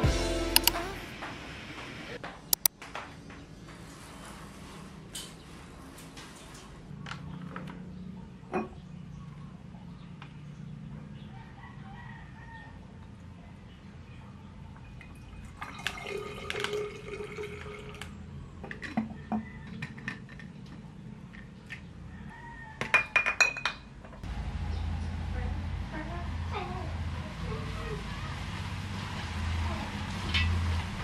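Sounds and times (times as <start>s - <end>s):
rooster crowing: 11.3s - 13.0s, 22.1s - 23.2s
soft liquid drips: 14.8s - 18.1s
liquid pouring into glass bottle: 15.0s - 18.1s
glass jars clinking: 22.9s - 23.8s.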